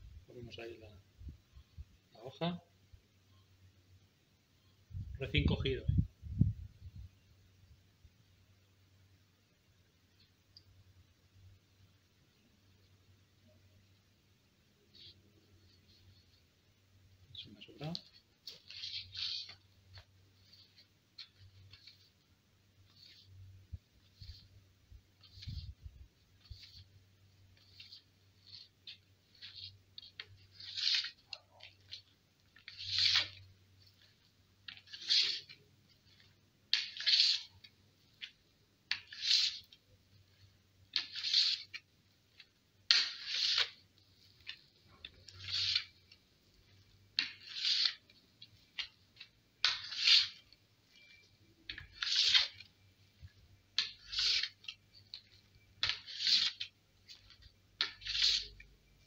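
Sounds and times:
board rubbing cotton roll scraping: 57.8 - 58.6.

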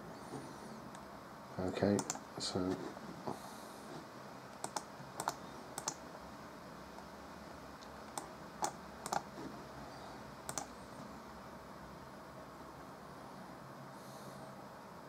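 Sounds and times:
faint background noise: 0.0 - 15.0
mouse and keyboard clicks: 1.9 - 2.2, 4.6 - 6.0, 8.1 - 9.3, 10.5 - 10.8.

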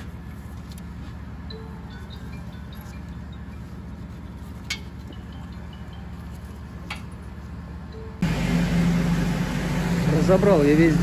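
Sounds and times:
low background hum: 0.0 - 11.0
loud hum: 7.6 - 11.0.

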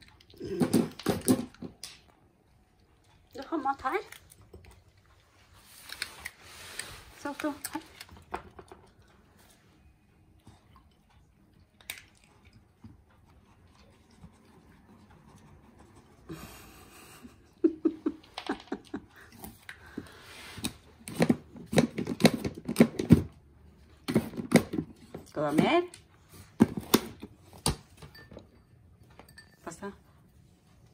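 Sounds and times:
dog crunching dry kibble: 3.0 - 9.2.

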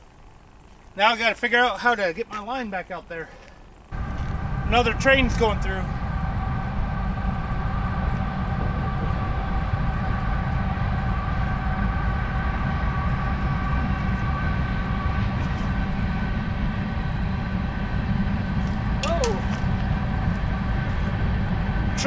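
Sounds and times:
train passing: 3.9 - 22.0
steady high tones: 4.0 - 19.0.

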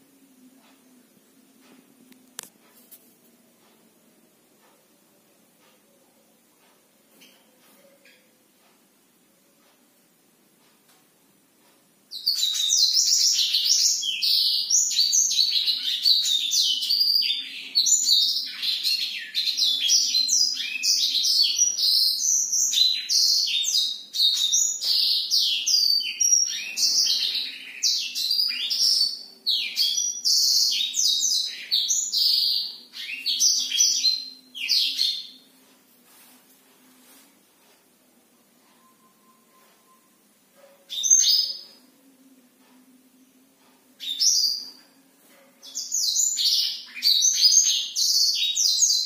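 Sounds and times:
canary singing high twittering notes: 12.1 - 35.5, 38.8 - 41.9, 44.0 - 49.0.

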